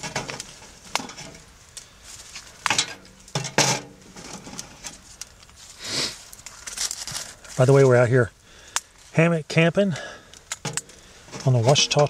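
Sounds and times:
dry twigs snapping: 0.0s - 7.8s, 8.6s - 9.1s, 10.2s - 11.2s.

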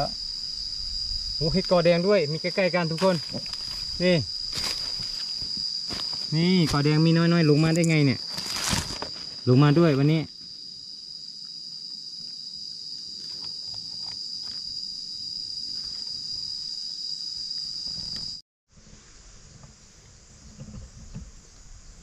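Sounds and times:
insects droning: 0.0s - 22.0s
soft insect hiss: 0.0s - 22.0s
footsteps in dry leaves: 3.0s - 7.0s, 7.6s - 9.4s.

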